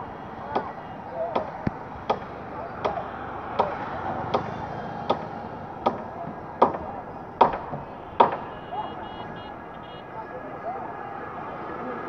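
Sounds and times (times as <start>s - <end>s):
tool striking wood: 0.5s - 8.6s.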